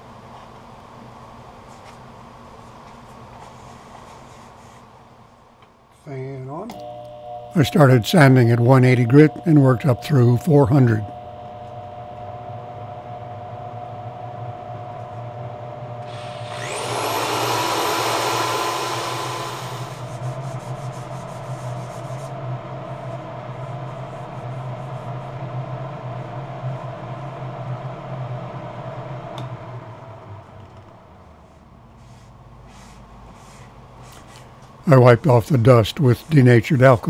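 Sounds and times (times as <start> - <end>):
wood lathe motor hum: 6.7 - 14.7, 15.7 - 21.3
hissing with rising whine: 6.7 - 20.4.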